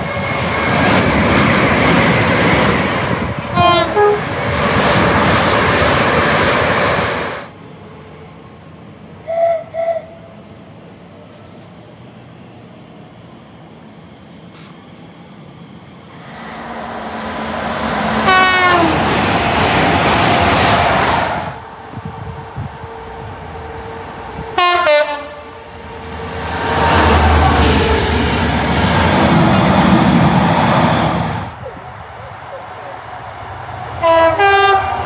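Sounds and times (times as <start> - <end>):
train low rumble: 0.0 - 35.0
train passing: 0.0 - 35.0
train horn blast: 3.5 - 4.3, 18.2 - 19.1, 24.4 - 25.6, 34.0 - 35.0.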